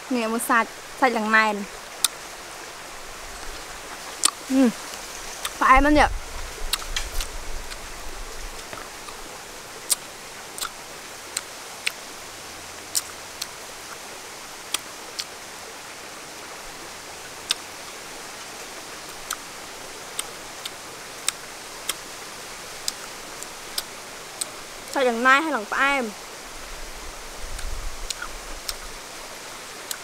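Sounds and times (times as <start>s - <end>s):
steady hiss: 0.0s - 30.0s
fruit peel clicks and snaps: 4.2s - 4.4s, 10.6s - 10.8s, 27.6s - 28.8s.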